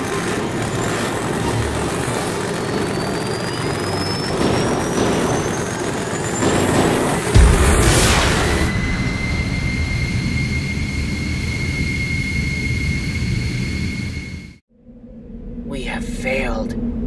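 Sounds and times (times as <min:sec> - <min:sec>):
starship engine rushing: 0:00.0 - 0:14.6
thin rising whine: 0:00.0 - 0:15.8
blaster fire hits: 0:04.2 - 0:11.7.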